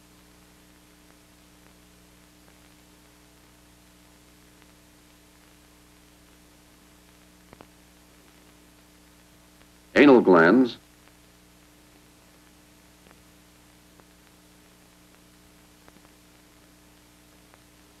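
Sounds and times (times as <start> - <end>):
film soundtrack hiss and hum: 0.0 - 18.0
faint clicks: 7.5 - 7.8.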